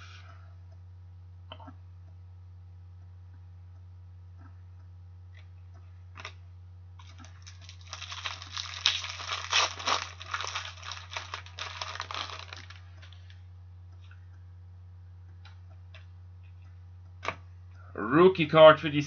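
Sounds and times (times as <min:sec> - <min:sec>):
steady low hum: 0:00.0 - 0:19.0
plastic sleeve crinkling: 0:07.0 - 0:13.4.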